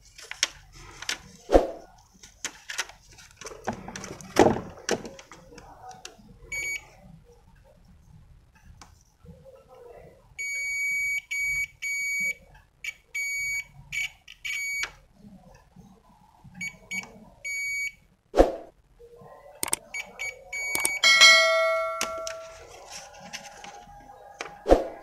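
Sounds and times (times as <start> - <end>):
multimeter continuity beeps: 6.5 - 6.9, 10.4 - 14.9, 16.6 - 18.0, 19.6 - 22.5.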